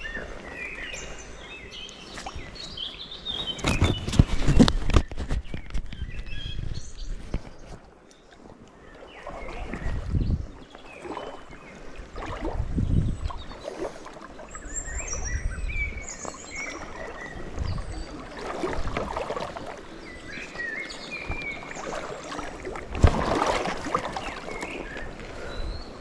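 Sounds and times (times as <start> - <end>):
bird chirping: 0.0 - 8.3, 14.4 - 18.4
river water splashing: 0.0 - 26.0.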